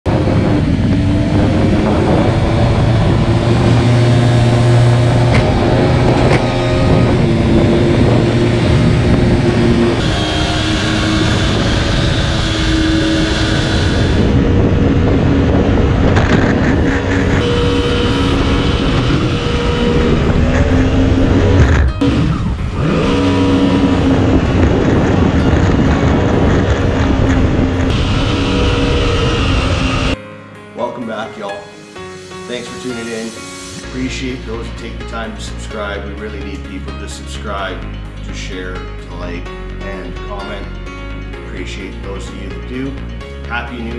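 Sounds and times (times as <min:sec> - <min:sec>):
rushing water and wind: 0:00.1 - 0:30.2
boat engine droning: 0:00.1 - 0:30.3.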